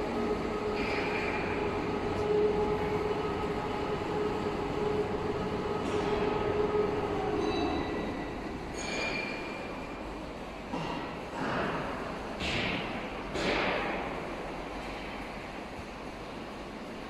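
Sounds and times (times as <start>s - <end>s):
grinder-mixer machine humming: 0.0s - 8.8s.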